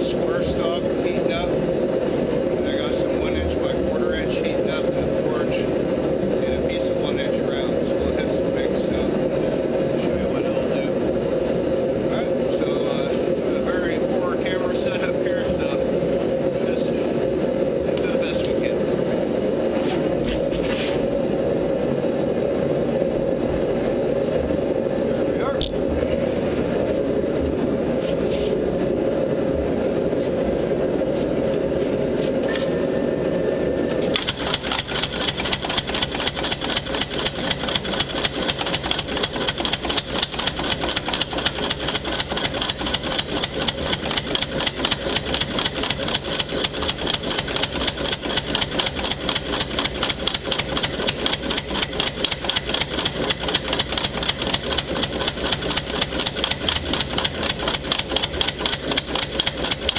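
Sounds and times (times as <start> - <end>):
electric motor running: 34.1 - 59.9.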